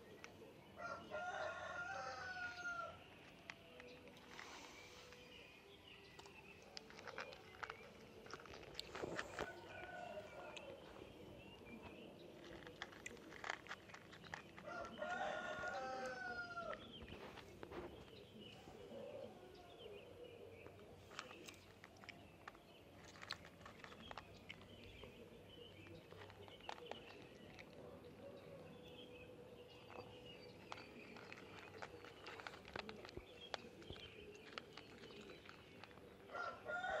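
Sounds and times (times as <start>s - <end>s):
cat crunching dry kibble: 0.0s - 19.4s, 20.0s - 37.0s
rooster crowing: 14.7s - 16.7s, 36.3s - 37.0s.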